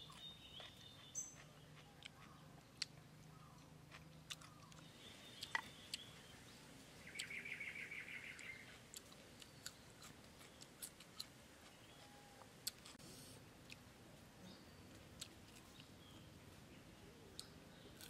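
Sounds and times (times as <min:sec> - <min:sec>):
person chewing food: 0:00.0 - 0:06.3, 0:08.4 - 0:13.9, 0:14.9 - 0:16.0.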